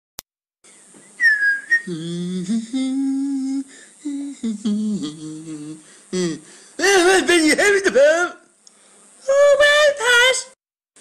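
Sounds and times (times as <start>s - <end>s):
short falling whistle: 1.2s - 1.9s
man humming a tune: 1.2s - 7.2s.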